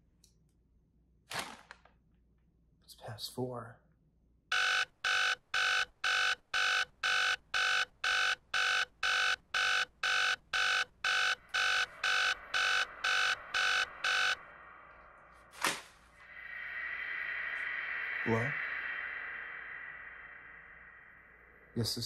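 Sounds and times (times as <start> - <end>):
phone ringtone beeping: 4.5 - 14.4.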